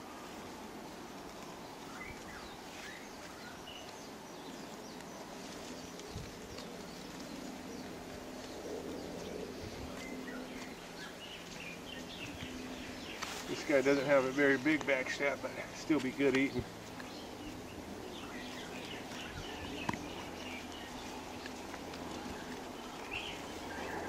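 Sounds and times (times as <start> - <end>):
faint steady hum: 0.0 - 24.0
bird chirps: 15.5 - 24.0.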